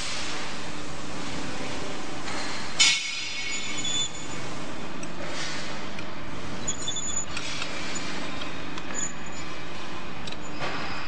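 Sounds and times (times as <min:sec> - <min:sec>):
short high squeaks: 0:03.4 - 0:04.4, 0:06.6 - 0:08.2, 0:08.9 - 0:09.5.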